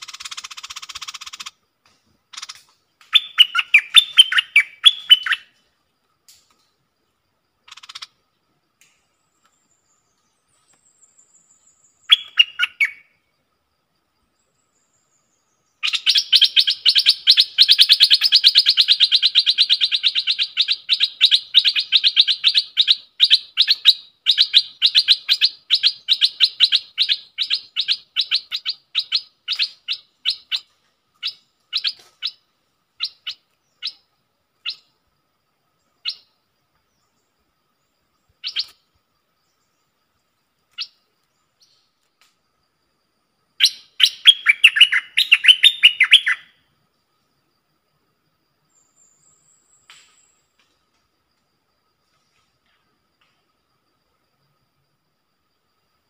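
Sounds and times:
bird sharp chirps: 2.3s - 5.6s, 8.9s - 13.2s, 14.5s - 34.9s, 35.8s - 37.3s, 38.2s - 38.9s, 40.7s - 42.0s, 43.6s - 46.6s
bird warbling song: 2.3s - 5.6s, 9.1s - 13.1s, 14.4s - 34.9s, 35.8s - 38.8s, 43.6s - 46.5s.

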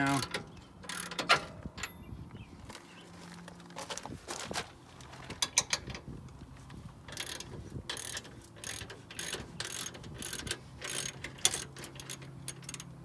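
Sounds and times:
ratchet pawl clicking: 7.1s - 12.9s.

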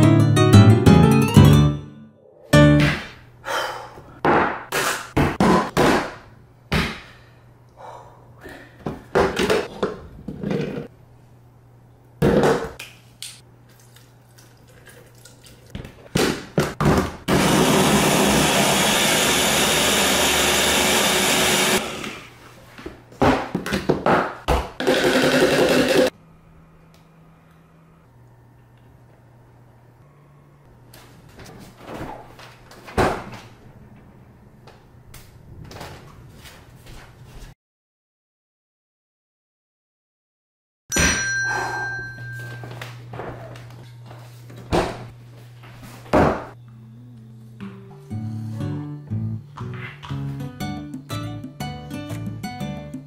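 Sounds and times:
blender running: 17.3s - 22.3s, 24.8s - 26.1s.

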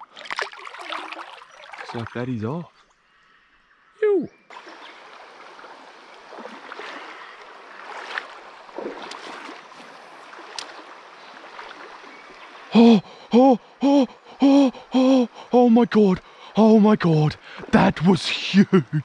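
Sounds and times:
river water running over stones: 4.5s - 12.8s
man crying out excitedly: 12.7s - 17.3s, 18.1s - 19.0s.

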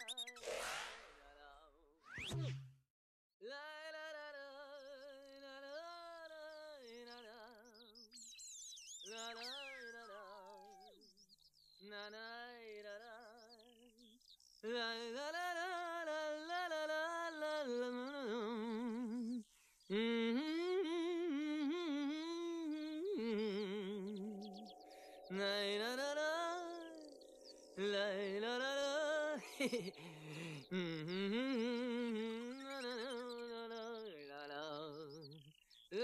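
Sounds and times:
person humming melody with vibrato: 17.7s - 35.2s.

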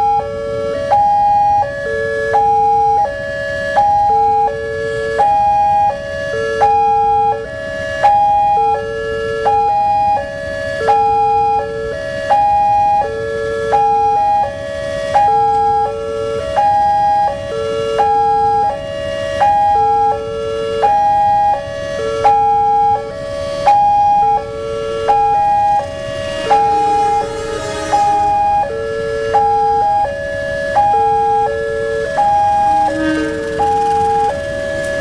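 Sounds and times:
level crossing warning alarm: 0.0s - 35.0s.

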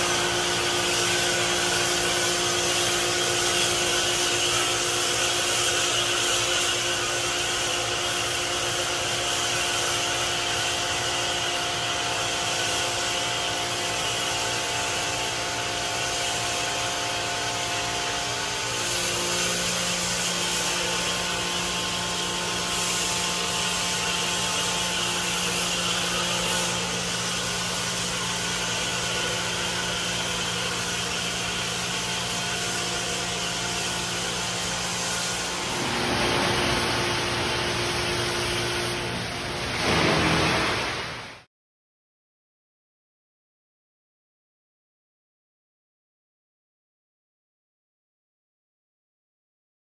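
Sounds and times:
machine hum: 10.1s - 41.5s.

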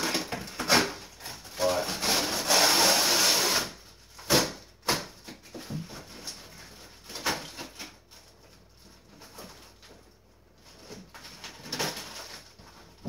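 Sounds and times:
cardboard scraping: 0.0s - 3.8s.

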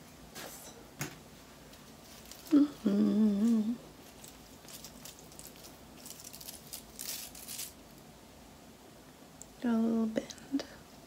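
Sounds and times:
woman humming: 2.4s - 3.8s
velcro rollers crackling: 4.1s - 7.8s.

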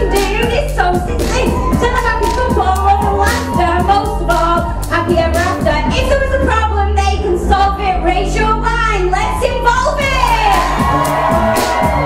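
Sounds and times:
drum beat: 0.0s - 6.2s, 10.0s - 12.0s
bass line: 0.0s - 12.0s.

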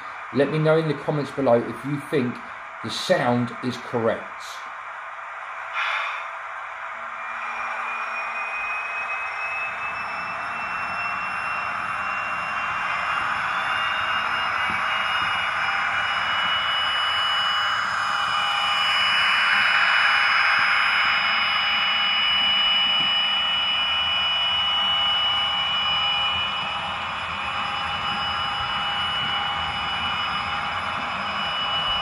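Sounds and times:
high turbocharger whine: 0.0s - 32.0s
model train engine sound from loudspeaker: 7.3s - 32.0s.

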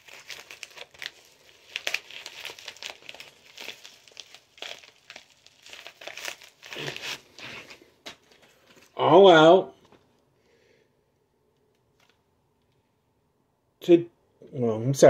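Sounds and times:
plastic mailer crinkling: 0.0s - 9.0s.

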